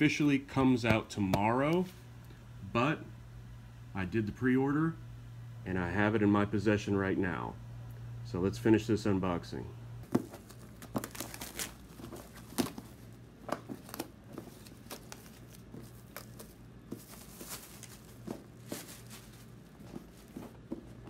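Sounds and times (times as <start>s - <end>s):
plastic shrink wrap crinkling: 10.0s - 21.0s
plastic wrap tearing: 10.1s - 13.1s, 13.7s - 20.4s.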